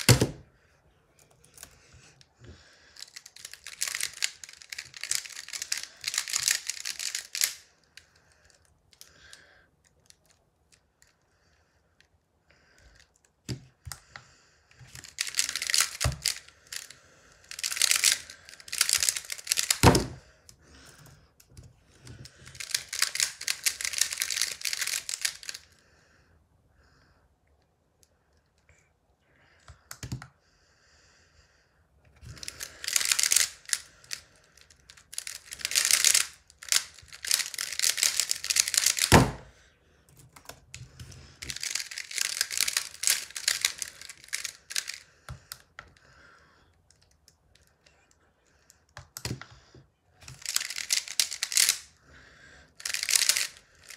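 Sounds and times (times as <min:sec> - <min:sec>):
plastic puzzle clicking: 0:03.0 - 0:09.1, 0:14.8 - 0:20.2, 0:21.6 - 0:25.7, 0:32.2 - 0:39.5, 0:40.2 - 0:46.0, 0:50.2 - 0:51.9, 0:52.8 - 0:53.9.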